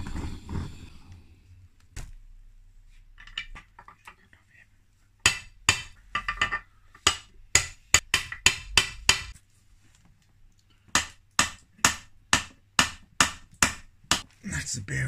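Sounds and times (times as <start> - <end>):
hammer tapping on metal: 5.2 - 9.4.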